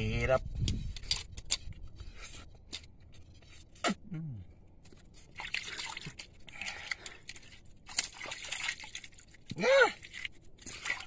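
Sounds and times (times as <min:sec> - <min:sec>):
water dripping and splashing: 0:04.9 - 0:11.0.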